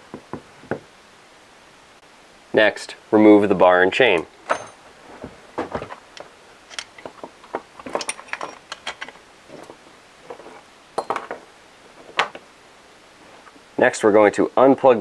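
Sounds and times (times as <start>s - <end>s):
chainsaw chain rattling and clinking: 4.4s - 4.8s, 6.6s - 7.2s, 7.8s - 9.8s.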